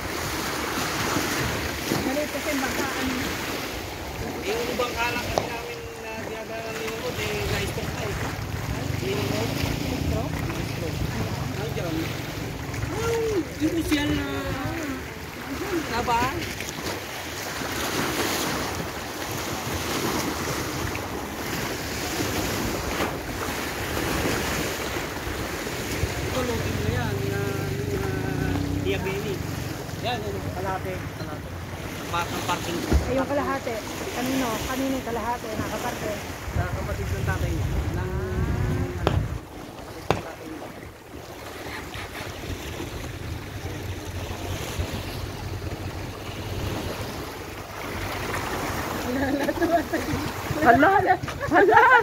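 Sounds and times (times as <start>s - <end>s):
waves washing against rocky shore: 0.0s - 52.0s
wind buffeting microphone: 35.6s - 40.3s.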